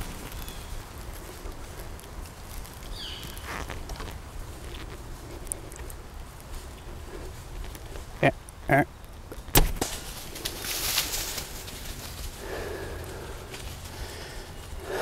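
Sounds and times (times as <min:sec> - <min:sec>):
deer running through dry leaves: 0:00.0 - 0:08.0, 0:09.8 - 0:15.0
bow shot crack: 0:09.5 - 0:10.2.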